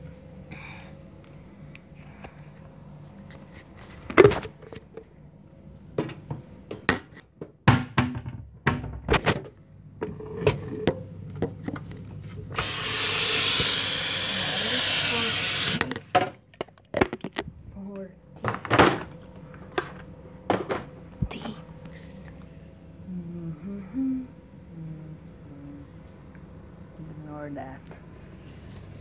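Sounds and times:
loud steady hiss: 0:12.5 - 0:15.8.

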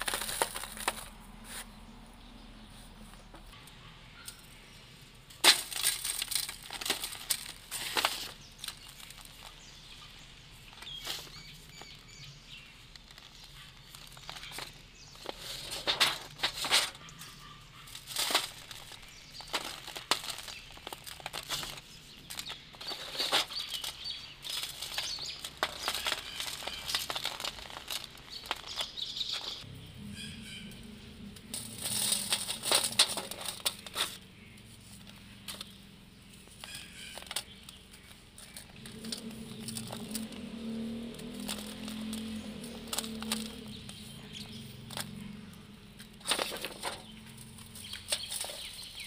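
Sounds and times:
cement block crunching by hand: 0:00.0 - 0:01.1, 0:18.0 - 0:29.6
crumbs falling on metal sheet: 0:00.0 - 0:01.1, 0:05.4 - 0:09.6, 0:17.9 - 0:29.6, 0:31.4 - 0:34.2
sharp crack: 0:05.4 - 0:09.4.

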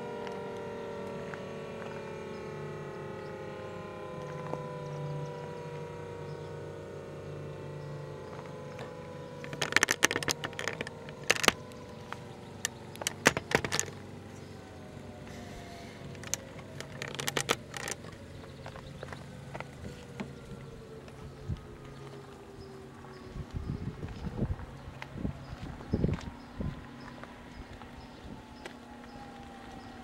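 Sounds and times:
low steady hum: 0:00.0 - 0:30.0
tornado siren winding down: 0:00.0 - 0:30.0
sharp clicks and rattles: 0:08.3 - 0:14.1, 0:16.0 - 0:20.4.

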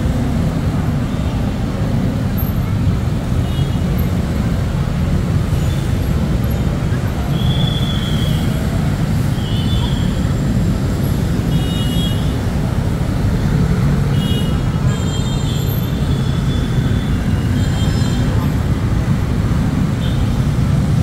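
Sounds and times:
motorcycles and cars passing: 0:00.0 - 0:21.0
road traffic rumble: 0:00.0 - 0:21.0.

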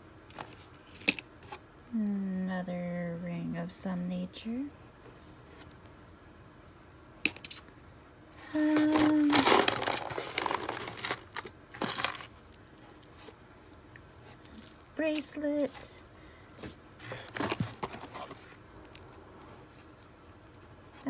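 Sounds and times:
metal jewelry clinking and rattling: 0:09.0 - 0:13.5.

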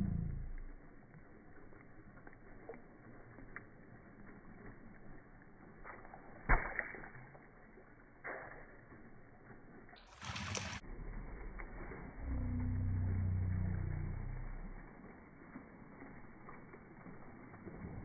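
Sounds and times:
sharp water slap: 0:05.9 - 0:07.4
racket moving through water: 0:10.0 - 0:12.2.

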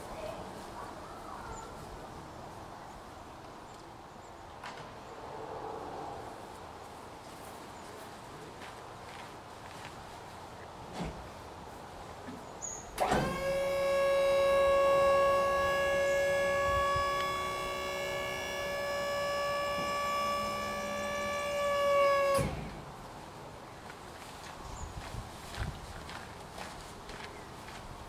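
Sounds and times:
electric motor whining: 0:13.0 - 0:23.0.

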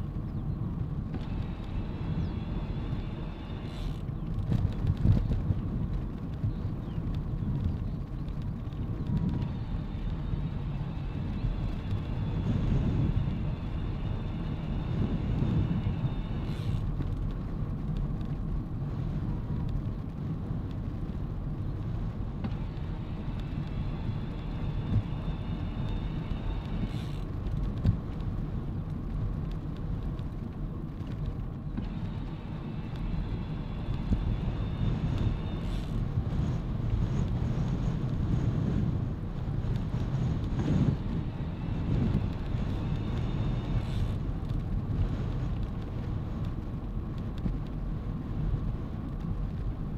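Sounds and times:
bicycle tyres rolling on tarmac: 0:00.0 - 0:49.9
wind rumble on microphone: 0:00.0 - 0:49.9
faint high whine: 0:31.7 - 0:38.9, 0:39.8 - 0:44.3.

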